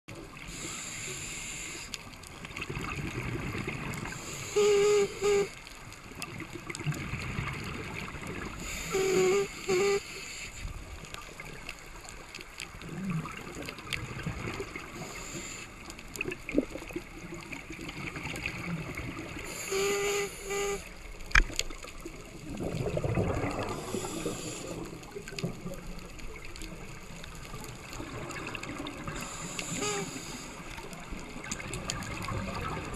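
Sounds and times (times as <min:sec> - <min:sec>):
diver regulator breathing: 0:00.5 - 0:02.0, 0:04.1 - 0:05.6, 0:08.5 - 0:10.8, 0:14.9 - 0:15.9, 0:19.4 - 0:21.0, 0:23.6 - 0:25.1, 0:29.1 - 0:31.0
exhaled bubbles gurgling: 0:02.1 - 0:32.9
short humming tone: 0:04.2 - 0:05.6, 0:08.7 - 0:10.6, 0:19.5 - 0:20.9, 0:29.4 - 0:30.4
small clicks: 0:19.7 - 0:22.0.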